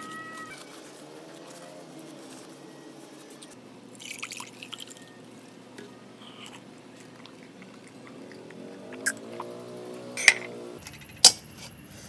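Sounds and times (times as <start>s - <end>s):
faint background hum: 0.0s - 12.0s
sip from a mug: 6.2s - 8.3s.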